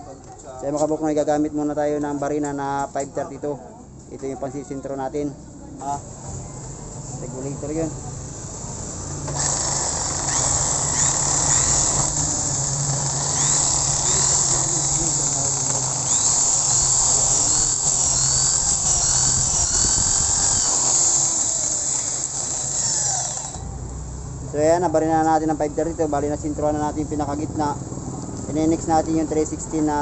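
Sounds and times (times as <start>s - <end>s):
electric drill motor humming: 9.3s - 23.7s
drill bit squealing through metal: 9.4s - 23.7s.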